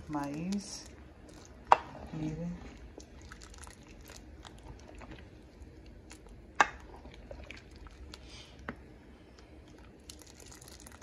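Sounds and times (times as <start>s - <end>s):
ladle stirring wet stew: 0.0s - 8.3s.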